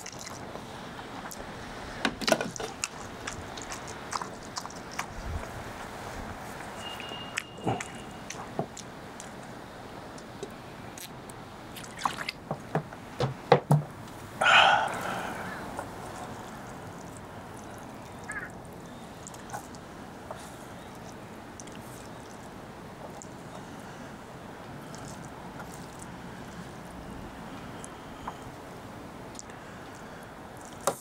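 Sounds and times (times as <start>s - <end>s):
soft eating ticks: 2.5s - 5.6s, 6.5s - 9.5s, 15.2s - 24.0s, 24.7s - 28.6s, 29.3s - 30.8s
gulping from plastic bottle: 7.6s - 8.3s.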